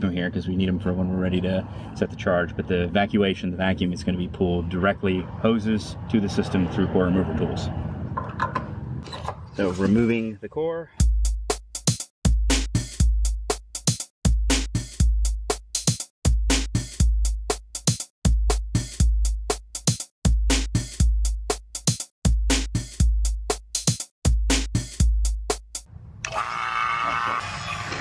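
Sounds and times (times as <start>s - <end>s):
electronic beat music: 11.0s - 25.9s.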